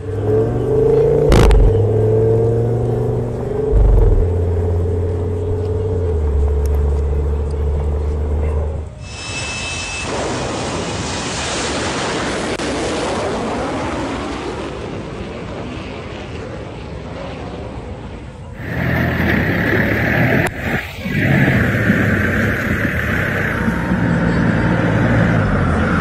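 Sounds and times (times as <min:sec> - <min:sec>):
jet engine rushing: 0:00.0 - 0:04.8, 0:09.0 - 0:26.0
car engine running: 0:00.1 - 0:08.5, 0:18.6 - 0:26.0.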